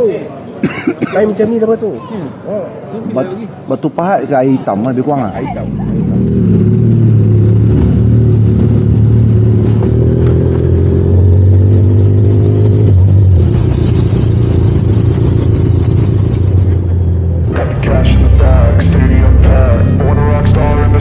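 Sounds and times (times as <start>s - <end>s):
motorcycle engine pulling away: 5.8s - 21.0s.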